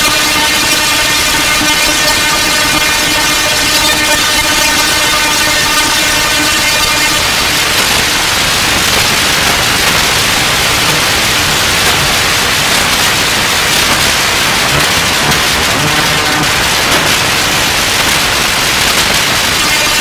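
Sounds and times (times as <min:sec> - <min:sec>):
synthesizer drone: 0:00.0 - 0:20.0
synthesizer static noise: 0:00.0 - 0:20.0.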